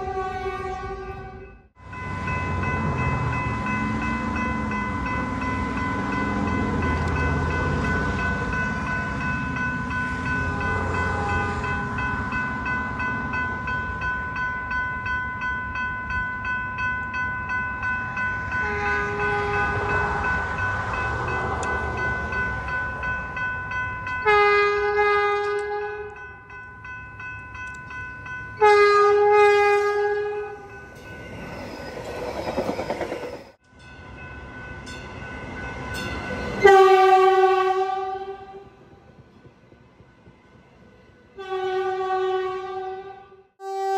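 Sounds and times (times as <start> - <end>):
train horn blasts: 0.0 - 1.6, 10.8 - 11.8, 18.6 - 20.3, 24.2 - 26.2, 28.6 - 30.6, 36.6 - 38.8, 41.3 - 43.9
railroad crossing bell ringing: 1.0 - 38.9.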